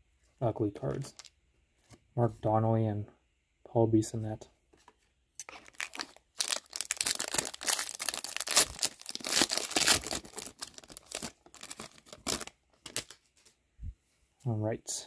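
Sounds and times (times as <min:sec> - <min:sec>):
wrapper tearing and crinkling: 0:05.4 - 0:13.2.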